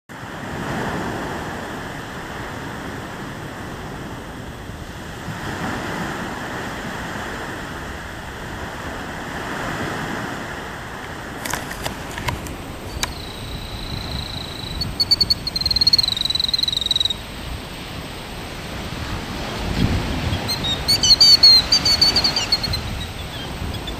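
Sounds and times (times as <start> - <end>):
rustling wind: 0.1 - 23.9
sharp clicks: 11.4 - 13.5
bird high call breaking into trill: 12.8 - 17.2, 20.3 - 23.9.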